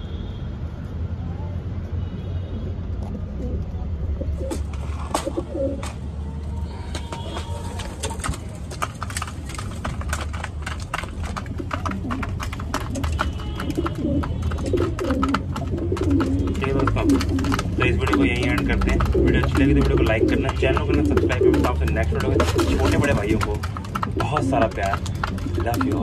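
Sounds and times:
pigeons pecking grain: 0:02.9 - 0:26.0
pigeons cooing: 0:03.0 - 0:06.0, 0:10.6 - 0:26.0.

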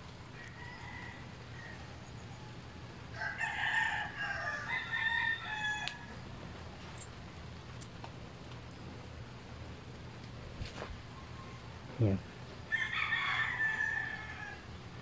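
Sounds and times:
rooster crowing: 0:00.3 - 0:06.2, 0:12.7 - 0:15.0.

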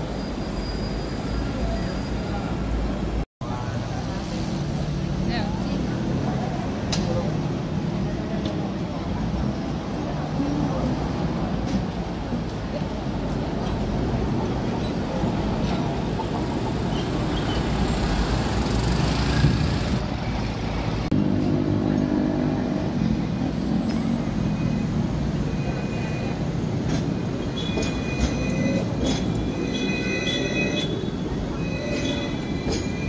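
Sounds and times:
tram wheels squealing on rails: 0:00.0 - 0:02.6, 0:12.8 - 0:20.6, 0:23.4 - 0:33.0
passing tram rumble: 0:00.0 - 0:33.0
street traffic noise: 0:00.0 - 0:33.0.

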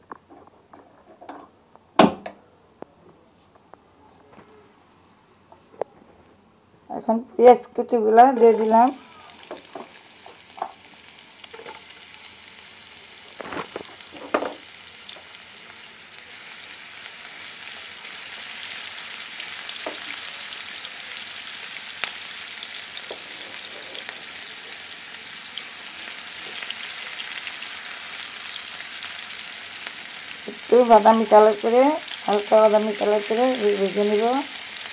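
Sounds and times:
onions sizzling in oil: 0:08.3 - 0:34.9.

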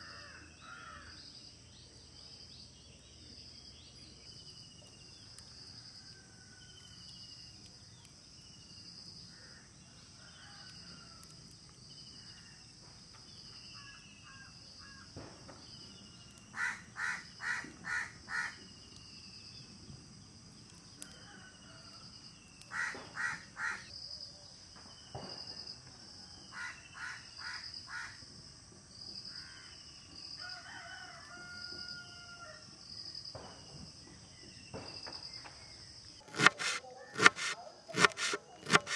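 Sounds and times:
rooster crowing: 0:21.0 - 0:22.2, 0:30.4 - 0:32.7.

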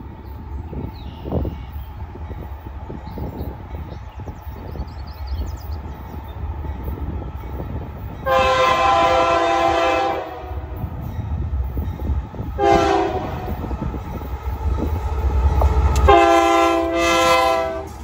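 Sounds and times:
low steady train rumble: 0:00.0 - 0:18.0
locomotive horn blasts: 0:08.2 - 0:10.8, 0:12.6 - 0:13.7, 0:15.9 - 0:18.0.

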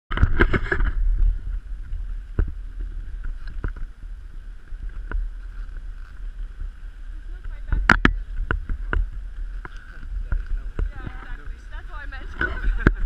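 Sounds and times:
wind rumbling on microphone: 0:00.1 - 0:13.0
sled clattering: 0:07.2 - 0:13.0.

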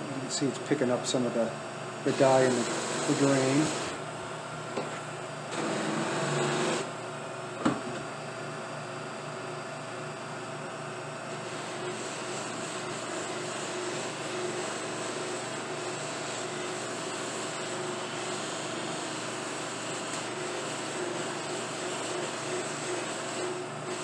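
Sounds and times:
lathe motor whirring: 0:02.0 - 0:04.0, 0:05.4 - 0:07.0, 0:11.3 - 0:24.0.

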